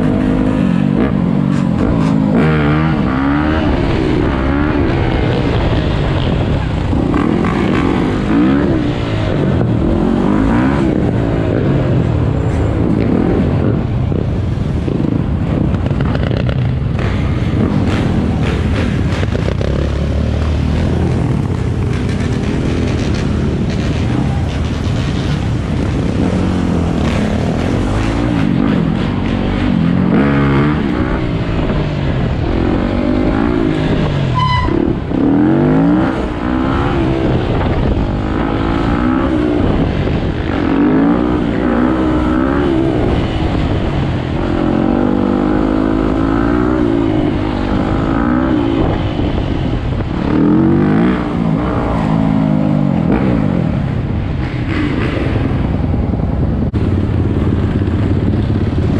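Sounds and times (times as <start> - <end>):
dirt bike engine revving: 0.0 - 13.8, 14.8 - 56.0.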